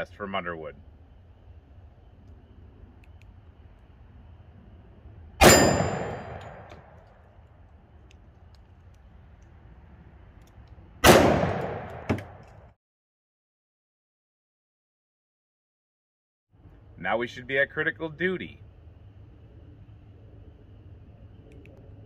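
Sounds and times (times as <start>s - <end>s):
pistol shots with echo: 5.4s - 6.9s, 11.0s - 12.4s.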